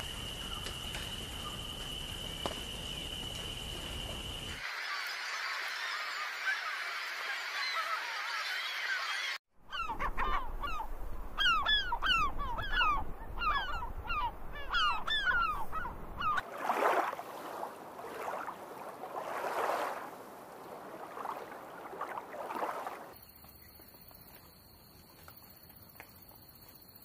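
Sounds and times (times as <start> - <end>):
waterbirds honking calls: 4.6 - 23.1.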